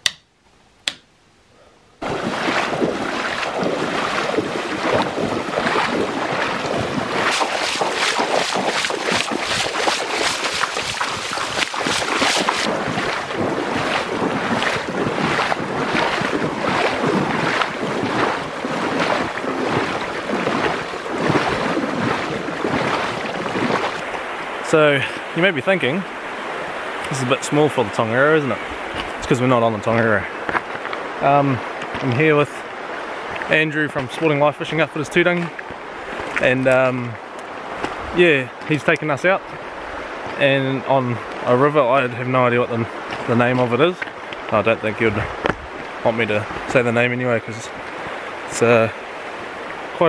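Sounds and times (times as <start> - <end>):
boots splashing through water: 2.0 - 24.2
rushing water: 2.0 - 50.0.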